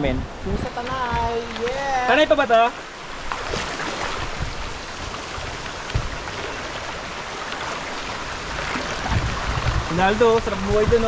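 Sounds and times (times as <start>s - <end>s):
river water rushing over rocks: 0.2s - 11.0s
soft low thumps: 0.6s - 1.5s, 5.4s - 6.3s.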